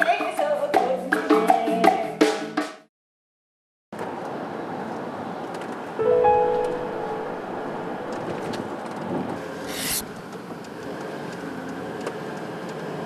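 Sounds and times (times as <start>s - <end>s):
traffic noise from passing vehicles: 4.0s - 6.0s, 7.4s - 13.0s
short hiss: 9.7s - 10.0s.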